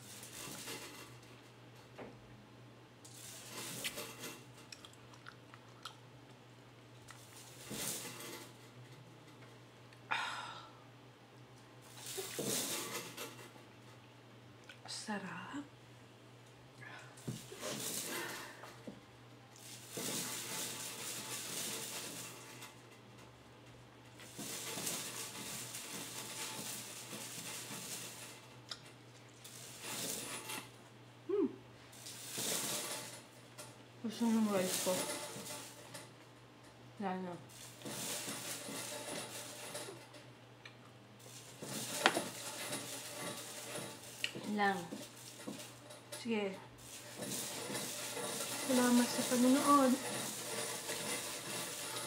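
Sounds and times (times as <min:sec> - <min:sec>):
chewing and eating: 0:04.6 - 0:07.4, 0:28.7 - 0:29.5.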